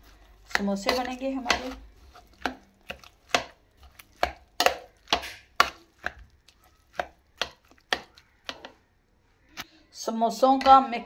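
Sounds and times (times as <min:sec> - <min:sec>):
metal spoon knocking bowl: 0:00.5 - 0:01.8, 0:04.2 - 0:06.2.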